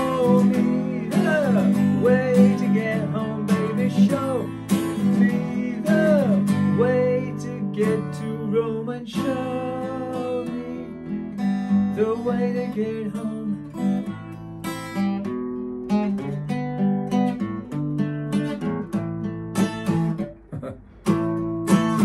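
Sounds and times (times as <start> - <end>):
man singing: 0.0 - 14.0
acoustic guitar strumming chords: 0.0 - 22.0.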